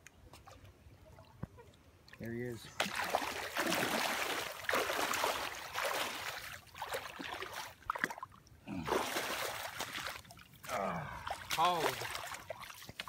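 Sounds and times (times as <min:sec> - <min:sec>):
fish thrashing and splashing water: 0:02.8 - 0:13.0.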